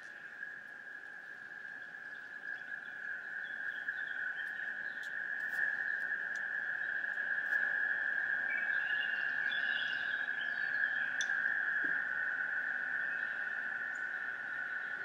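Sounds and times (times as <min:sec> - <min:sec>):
faint clicks: 0:11.2 - 0:12.0.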